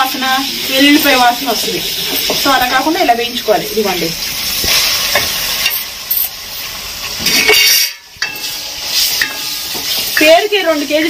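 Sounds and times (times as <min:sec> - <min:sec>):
paste sizzling in hot oil: 0:00.0 - 0:11.0.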